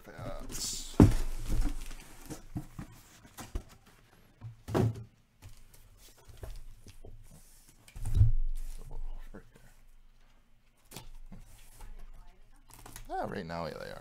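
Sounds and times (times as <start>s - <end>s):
cardboard cases thumping on table: 0.5s - 3.7s.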